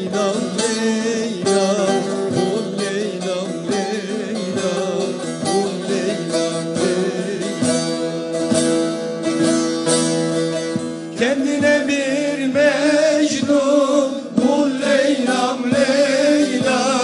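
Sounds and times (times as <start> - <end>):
plucked long-necked lute folk music: 0.0 - 17.0.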